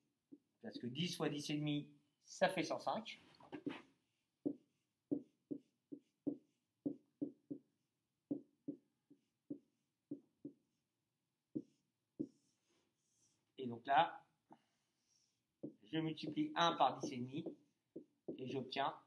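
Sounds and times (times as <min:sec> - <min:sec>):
stylus tapping on screen: 0:04.4 - 0:10.7, 0:11.5 - 0:12.5, 0:15.6 - 0:18.6.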